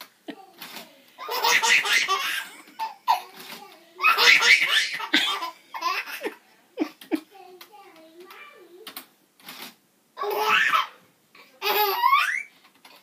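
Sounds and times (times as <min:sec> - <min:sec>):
baby belly-laughing: 0:01.2 - 0:03.4, 0:04.0 - 0:07.2.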